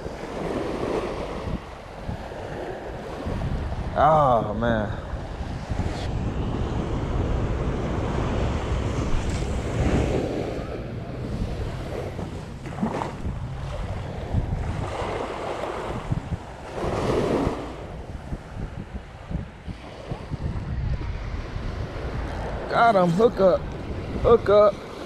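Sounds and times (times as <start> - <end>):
ocean surf washing onto beach: 0.0 - 25.0
wind rumbling on microphone: 0.0 - 25.0.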